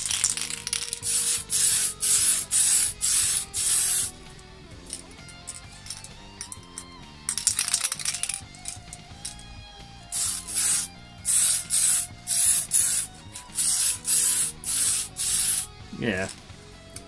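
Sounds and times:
spray paint can hissing: 0.0s - 4.2s, 10.1s - 16.3s
background music: 0.0s - 17.0s.

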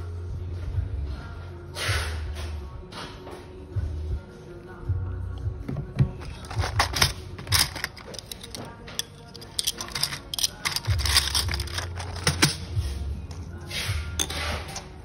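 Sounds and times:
circuit boards clattering in plastic tub: 5.7s - 12.8s.

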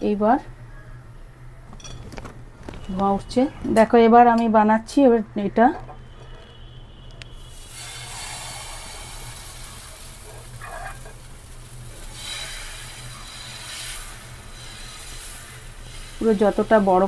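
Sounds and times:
batter sizzling on a hot pan: 7.3s - 17.0s.

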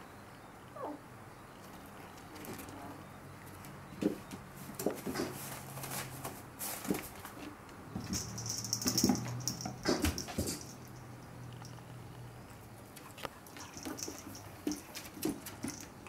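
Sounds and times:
paws skittering on wooden floor: 12.9s - 16.0s.

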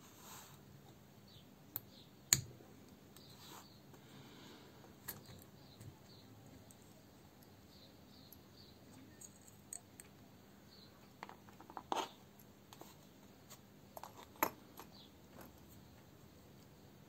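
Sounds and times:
low steady hum: 0.1s - 17.0s
tools and parts clicking: 8.3s - 10.2s.

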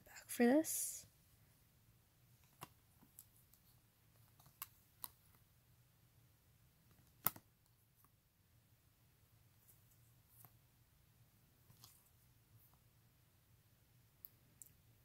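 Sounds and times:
cards shuffling clicks and taps: 2.4s - 5.4s, 6.9s - 7.5s.

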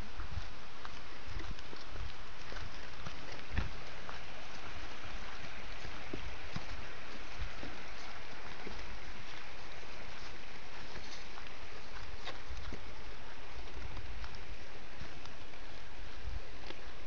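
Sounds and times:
footsteps on dirt trail: 0.0s - 17.0s
stream flowing: 0.0s - 17.0s.

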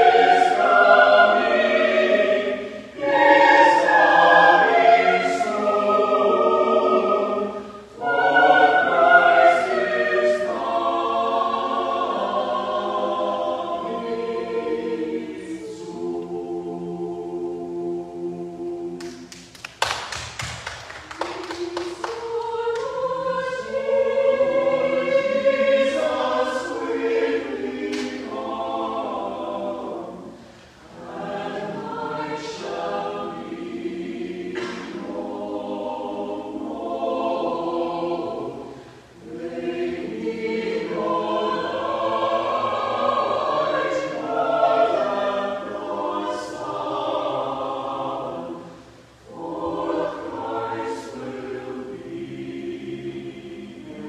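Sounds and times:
mixed choir singing: 0.0s - 19.4s, 20.6s - 54.0s.

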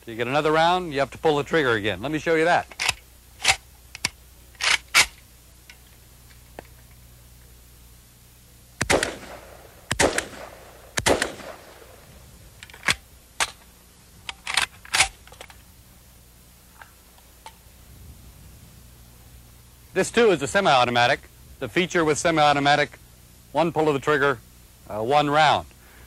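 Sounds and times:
rifle single shots: 8.8s - 12.0s.

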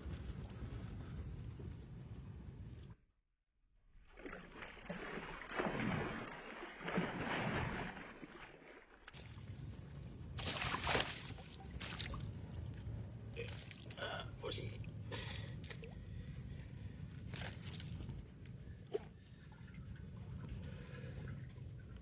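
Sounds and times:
wind rumble on microphone: 0.0s - 3.0s
fish thrashing water splashing: 4.1s - 9.5s, 10.4s - 12.3s.

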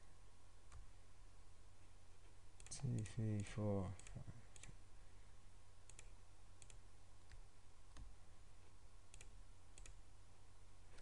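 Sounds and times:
low steady hum: 0.0s - 11.0s
computer mouse button clicking: 5.9s - 6.8s.

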